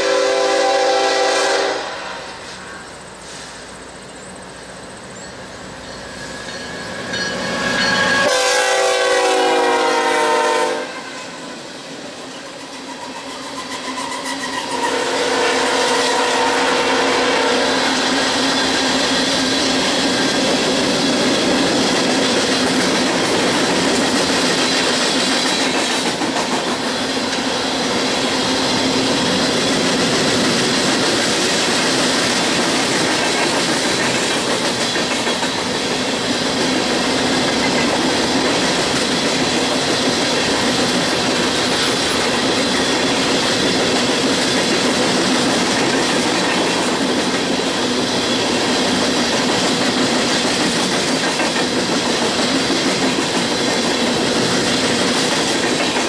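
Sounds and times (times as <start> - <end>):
locomotive air horn blast: 0.0 - 3.6, 7.6 - 11.4, 14.3 - 18.0
train hopper cars rolling: 0.0 - 56.0.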